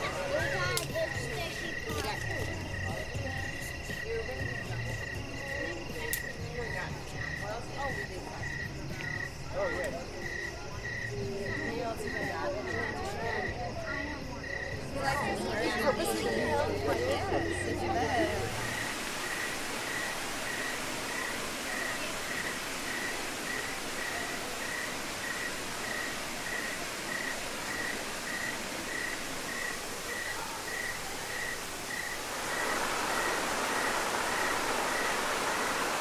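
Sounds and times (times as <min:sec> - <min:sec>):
fountain splashing: 0:00.0 - 0:10.2, 0:14.8 - 0:36.0
insect chirping: 0:00.0 - 0:14.9, 0:18.4 - 0:36.0
steady hiss: 0:15.6 - 0:36.0.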